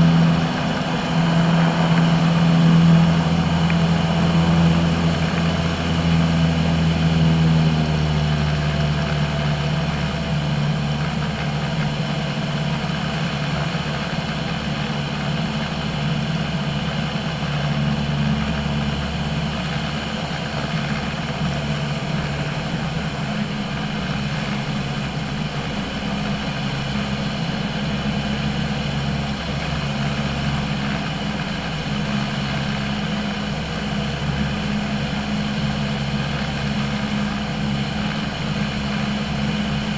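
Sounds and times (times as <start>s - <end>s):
propeller airplane engine droning: 0.0s - 39.9s.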